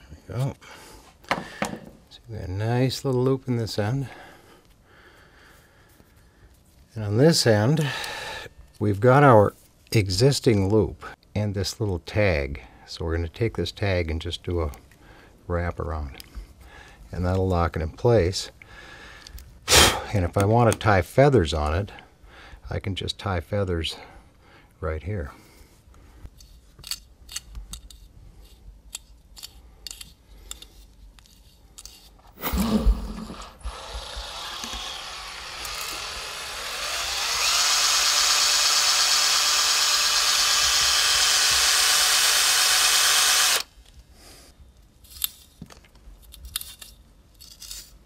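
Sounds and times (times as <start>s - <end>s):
cordless drill whining: 32.3s - 43.7s.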